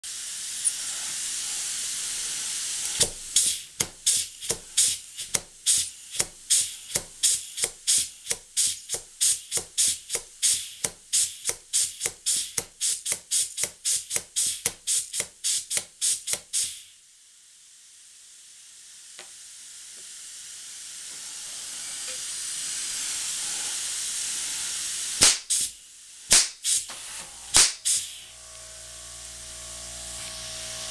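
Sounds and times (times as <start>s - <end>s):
steam hiss: 0.0s - 28.4s
steam hammer striking anvil: 25.2s - 25.7s, 26.3s - 26.8s, 27.5s - 28.0s.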